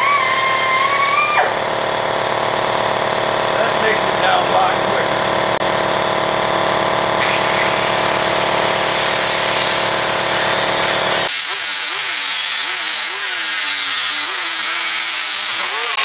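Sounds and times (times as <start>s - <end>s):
air grinder whining on steel: 0.0s - 16.0s
deep machine drone: 0.6s - 11.3s.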